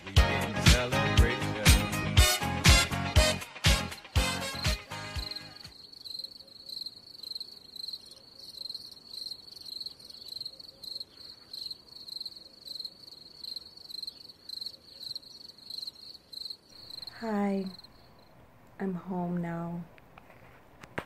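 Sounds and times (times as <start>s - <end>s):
cricket chirping: 3.9s - 18.7s.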